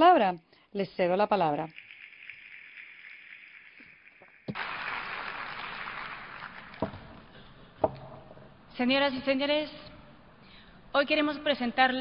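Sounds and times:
audience applause: 0:04.5 - 0:07.4.

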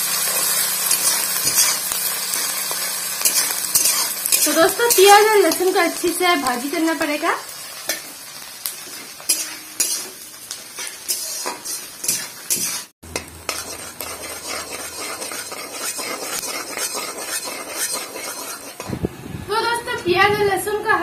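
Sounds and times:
onions sizzling in hot oil: 0:00.0 - 0:19.8
spatula scraping metal pan: 0:00.9 - 0:02.4, 0:03.2 - 0:05.8, 0:08.9 - 0:18.9.

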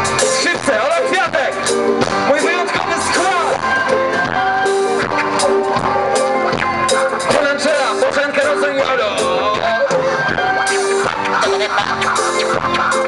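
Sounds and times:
loud live band music: 0:00.0 - 0:13.0.

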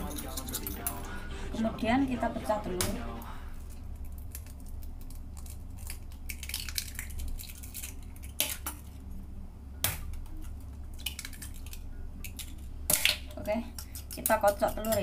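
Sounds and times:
steady low hum: 0:00.0 - 0:15.0
egg being broken open: 0:03.6 - 0:09.0, 0:09.8 - 0:15.0.

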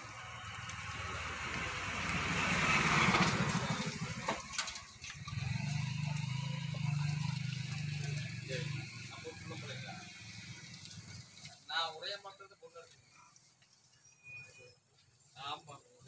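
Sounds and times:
engine humming steadily: 0:00.0 - 0:11.7
vehicle passing on road: 0:00.0 - 0:16.0.

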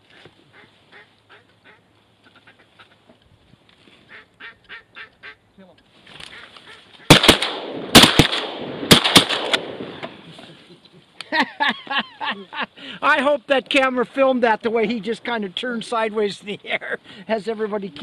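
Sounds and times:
goose-like honking calls: 0:00.5 - 0:03.0, 0:04.1 - 0:05.4, 0:06.2 - 0:07.1
shotgun shots: 0:07.1 - 0:10.0.

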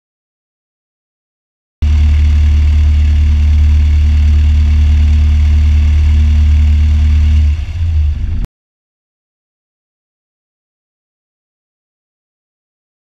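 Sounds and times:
aircraft engine idling: 0:01.8 - 0:08.5.

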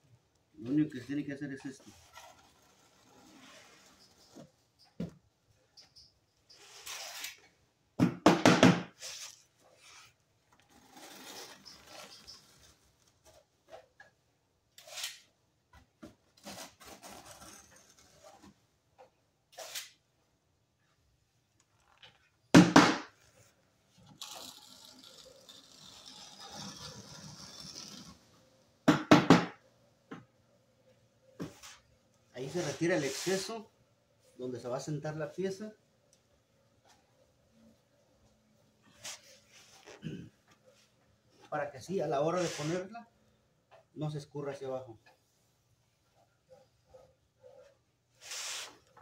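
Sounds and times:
trowel scraping adhesive on wall: 0:01.8 - 0:04.4, 0:24.0 - 0:28.4.

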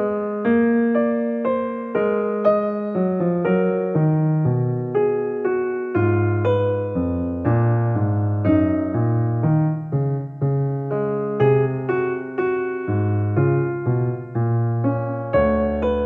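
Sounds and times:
soft slow piano music: 0:00.0 - 0:16.0.

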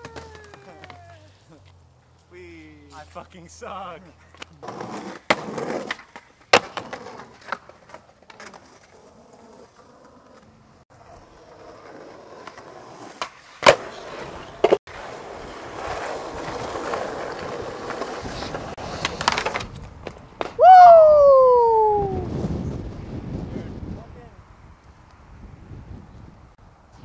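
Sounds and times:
skateboard clacking on ground: 0:00.0 - 0:01.8, 0:04.2 - 0:20.6
skateboard wheels rolling on concrete: 0:00.0 - 0:27.0.

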